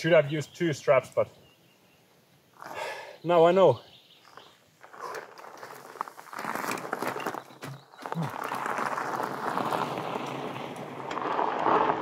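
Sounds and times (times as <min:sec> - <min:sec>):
bike tyres crunching on gravel: 0:04.2 - 0:12.0.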